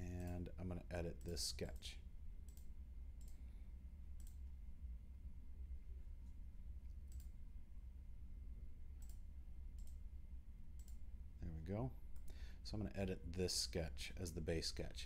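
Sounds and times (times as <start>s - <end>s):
low steady hum: 0.0s - 15.0s
computer mouse clicks: 2.5s - 3.4s, 4.2s - 4.4s, 7.1s - 7.4s, 9.0s - 10.0s, 10.8s - 11.0s.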